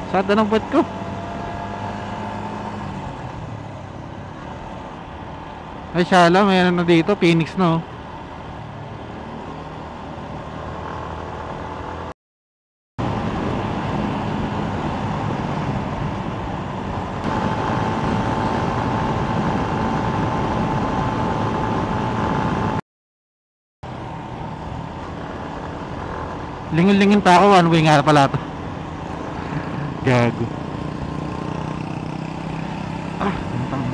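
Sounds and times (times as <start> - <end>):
motorcycle engine cruising: 8.6 - 12.1, 13.0 - 22.8, 23.9 - 33.9.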